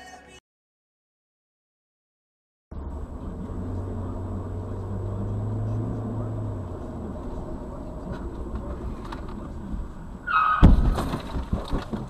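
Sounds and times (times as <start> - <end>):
car road noise: 2.7 - 12.0
rattling clicks: 8.0 - 9.8
short high tire squeal: 10.2 - 10.8
loud collision crash: 10.3 - 12.0.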